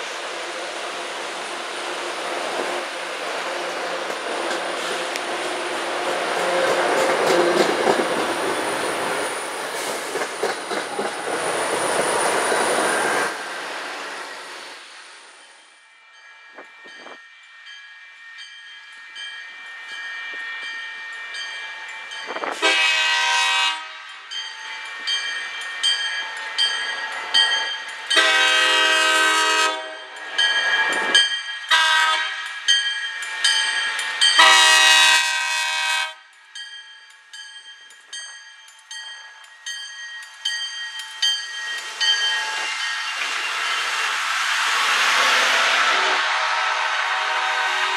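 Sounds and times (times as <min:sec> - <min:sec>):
train rushing past: 0:00.0 - 0:15.8, 0:41.2 - 0:47.9
crossing bell ringing: 0:15.3 - 0:43.7
locomotive air horn blasts: 0:22.6 - 0:24.1, 0:28.2 - 0:30.0, 0:31.7 - 0:32.4, 0:34.4 - 0:36.2, 0:45.9 - 0:47.9.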